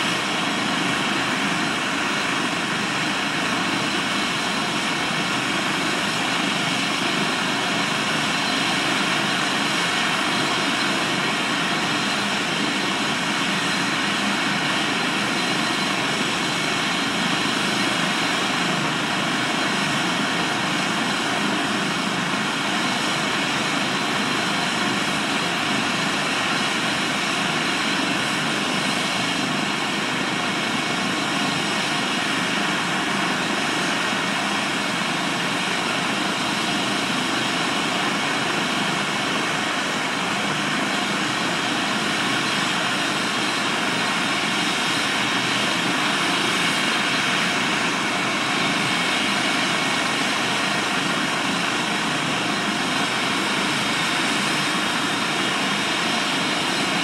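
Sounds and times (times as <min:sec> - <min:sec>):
helicopter turbine whine and rotor: 0:00.0 - 0:57.0.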